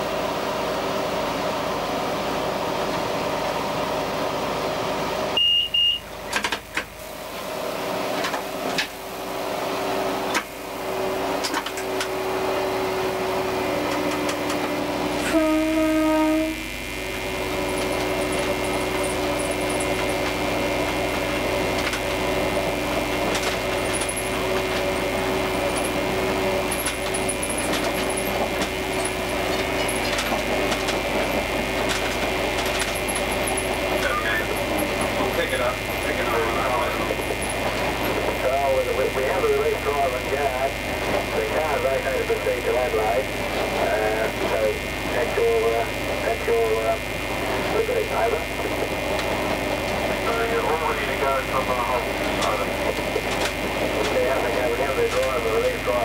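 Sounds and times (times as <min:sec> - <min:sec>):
rail noise: 0:00.0 - 0:05.4, 0:06.0 - 0:56.0
diesel railcar engine hum: 0:00.0 - 0:56.0
short high beep: 0:05.4 - 0:06.1
train horn blast: 0:15.1 - 0:17.6.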